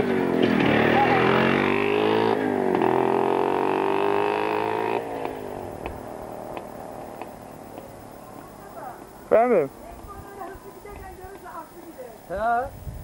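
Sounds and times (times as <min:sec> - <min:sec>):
motorcycle engine riding away: 0:00.0 - 0:12.2
faint hiss: 0:03.7 - 0:13.0
light ticks: 0:05.2 - 0:08.0.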